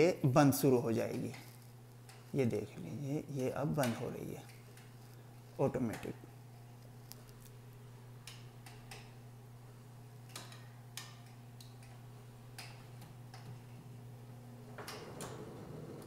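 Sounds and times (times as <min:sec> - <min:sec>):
faint motor hum: 0:00.0 - 0:16.0.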